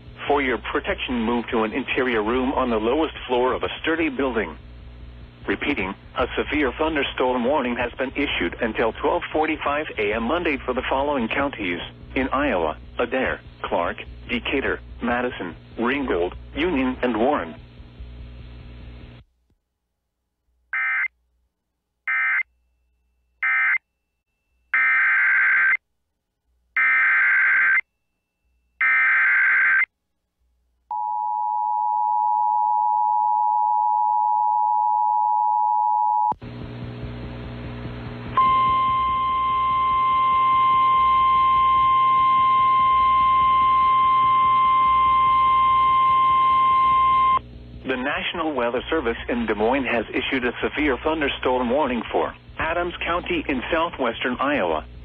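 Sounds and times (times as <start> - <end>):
low hum: 0.0 - 19.3, 30.9 - 55.0
data tone bursts: 38.4 - 47.4
steady warning alarm tone: 38.4 - 47.4
two-tone attention signal: 38.4 - 47.4.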